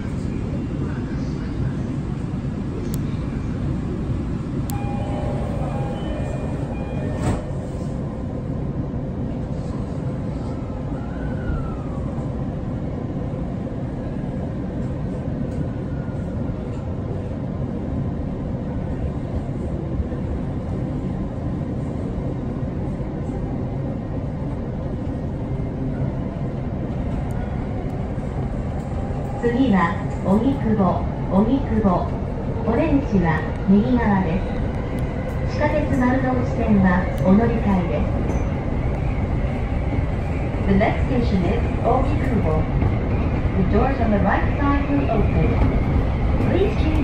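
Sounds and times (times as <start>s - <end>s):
train wheels rumbling: 21.8s - 47.0s.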